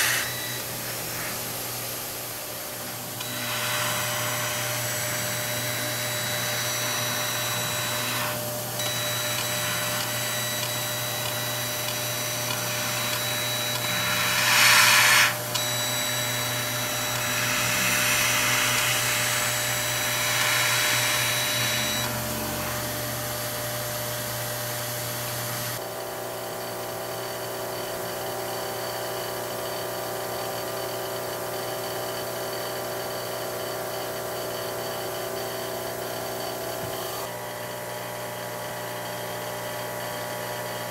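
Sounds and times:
laser cutter humming: 0.0 - 25.9, 31.1 - 37.4
water and air pumps buzzing: 0.0 - 26.1, 32.8 - 40.0.

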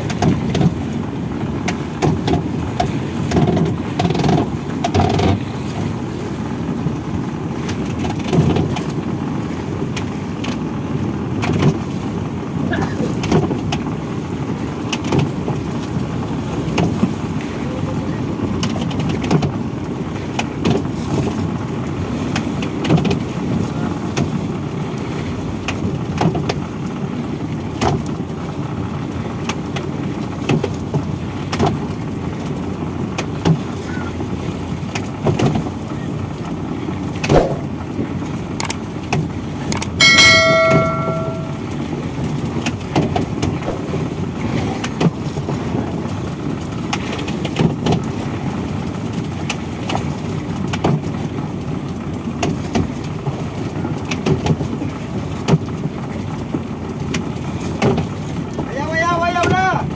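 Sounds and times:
winch knocking and clicking: 39.8 - 41.6
metallic ringing tone: 39.8 - 41.8.

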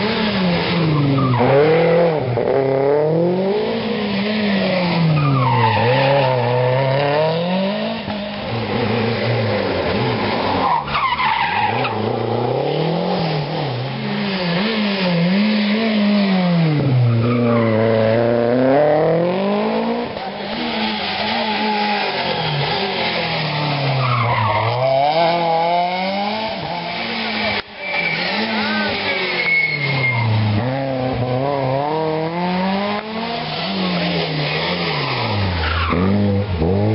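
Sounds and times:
rally car engines revving: 0.0 - 36.9
tyre noise on tarmac: 0.0 - 36.9.

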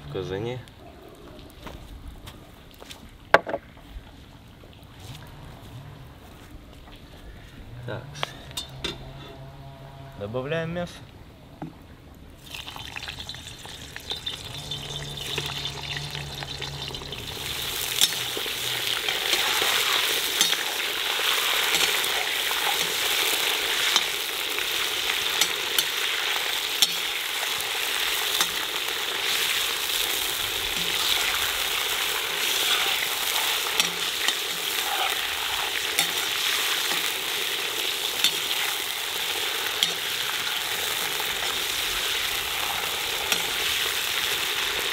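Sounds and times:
metal ladle scraping pot: 8.4 - 9.4, 13.7 - 24.2, 32.1 - 37.1
meat sizzling in fat: 12.4 - 44.9.

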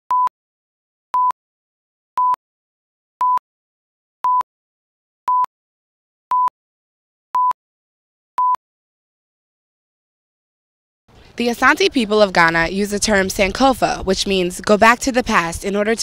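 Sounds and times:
short single-tone beeps: 0.1 - 0.3, 1.2 - 1.4, 2.2 - 2.4, 3.2 - 3.4, 4.2 - 4.4, 5.3 - 5.5, 6.3 - 6.5, 7.4 - 7.6, 8.4 - 8.6.

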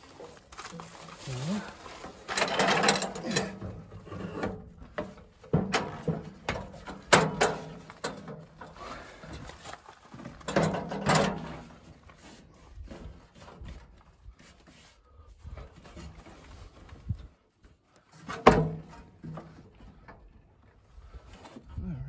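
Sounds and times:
metal step knocking and clicking: 2.3 - 8.4.

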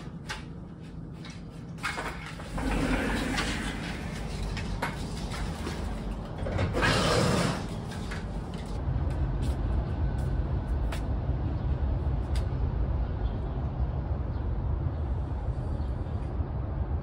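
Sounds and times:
distant city traffic rumble: 0.0 - 17.0
sliding door rolling open: 1.8 - 8.8.

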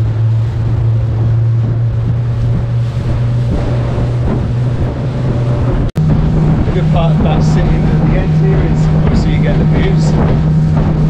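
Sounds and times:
outboard motor running: 0.0 - 11.0
water rushing past hull: 0.0 - 11.0
wind buffeting microphone: 0.0 - 11.0.

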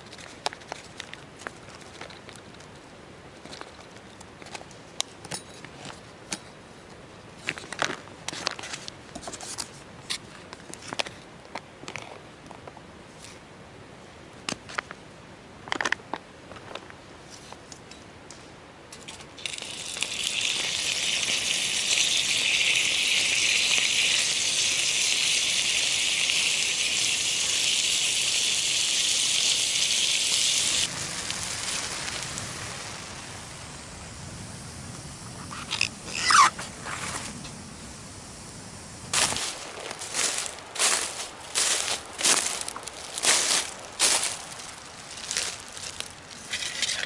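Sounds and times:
fire crackling: 19.3 - 47.0
food sizzling in pan: 19.4 - 34.0.

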